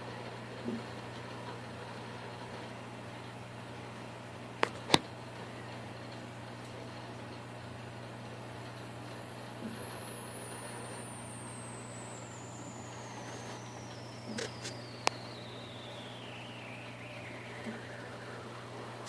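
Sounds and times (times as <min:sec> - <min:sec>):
low hum with faint hiss: 0:00.0 - 0:19.0
high whistle falling in pitch: 0:06.3 - 0:19.0.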